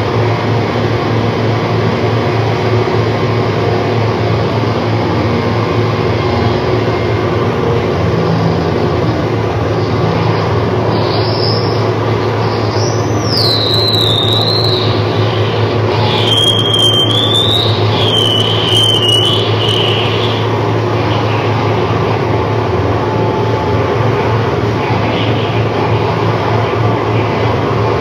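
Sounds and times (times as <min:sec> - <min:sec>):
amplifier hum and hiss drone: 0:00.0 - 0:28.0
high-pitched gliding whistling tones: 0:09.8 - 0:21.6.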